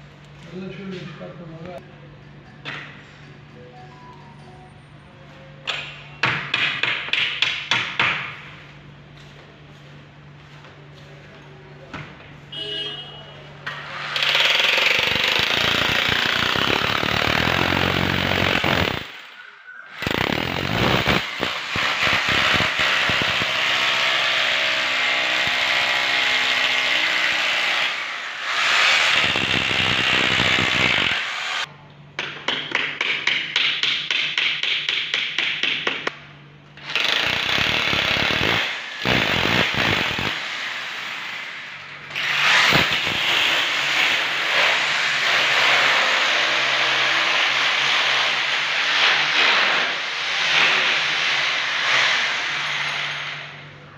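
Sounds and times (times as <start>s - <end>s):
electric drill boring into plastic: 14.2s - 19.2s, 20.0s - 23.6s, 28.4s - 31.7s.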